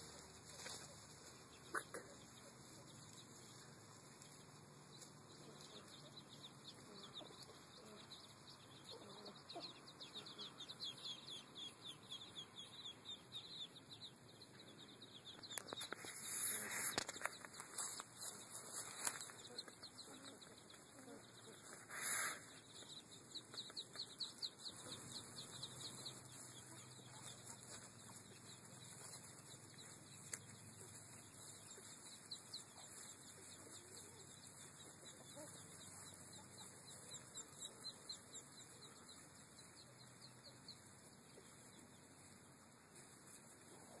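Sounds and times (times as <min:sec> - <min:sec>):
ducklings peeping: 0:00.0 - 0:44.0.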